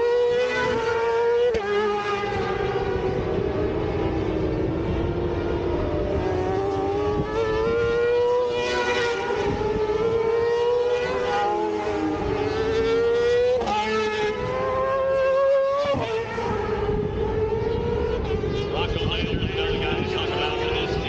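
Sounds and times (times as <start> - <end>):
racing motorcycle engine high revs: 0.0 - 18.7, 19.7 - 21.0
motorcycle passing by: 0.0 - 21.0.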